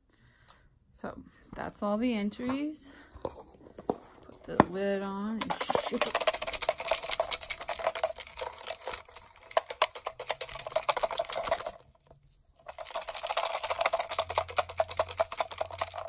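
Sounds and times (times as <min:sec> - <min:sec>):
paper slips rattling in container: 0:05.4 - 0:16.0.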